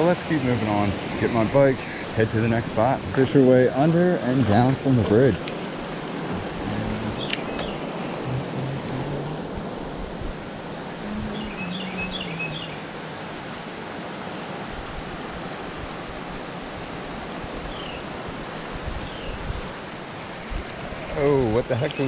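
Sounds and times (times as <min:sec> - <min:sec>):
creek rushing over riffle: 0:00.0 - 0:08.6.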